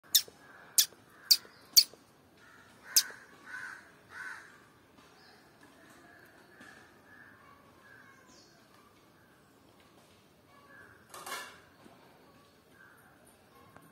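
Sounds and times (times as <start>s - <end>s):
squirrel chip calls: 0.0s - 2.0s, 2.8s - 4.4s.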